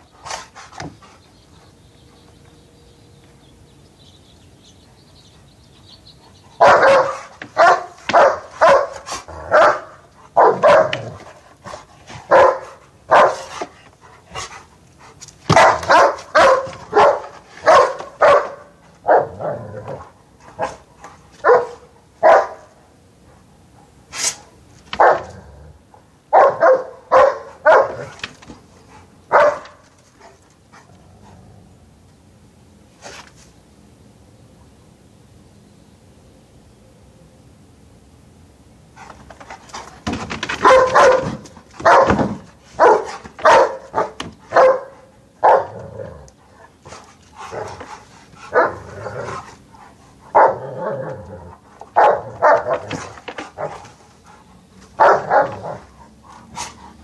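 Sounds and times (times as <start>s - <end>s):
dog barking: 6.6s - 11.1s, 12.3s - 13.5s, 15.5s - 19.6s, 21.4s - 22.7s, 25.0s - 25.3s, 26.3s - 28.1s, 29.3s - 29.8s, 40.6s - 45.8s, 48.5s - 48.9s, 50.3s - 50.7s, 52.0s - 52.9s, 55.0s - 55.9s.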